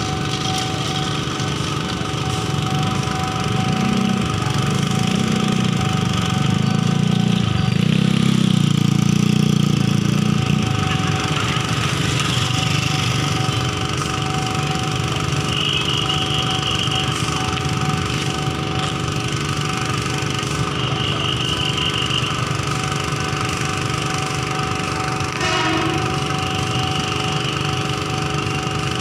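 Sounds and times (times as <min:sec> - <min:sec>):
locomotive engine rumbling: 0:00.0 - 0:29.0.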